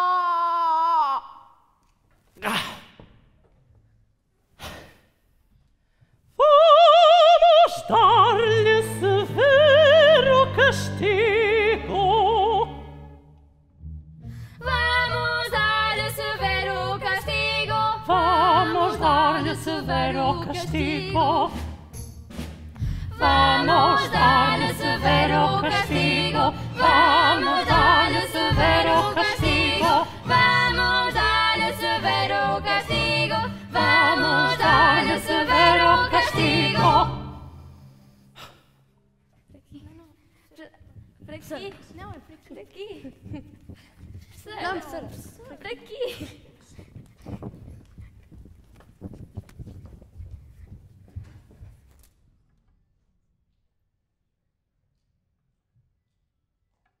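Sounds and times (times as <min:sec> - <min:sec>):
woman singing opera: 0:06.4 - 0:12.9, 0:14.6 - 0:21.6, 0:23.1 - 0:37.3
female choir singing: 0:14.6 - 0:21.5, 0:23.1 - 0:37.5.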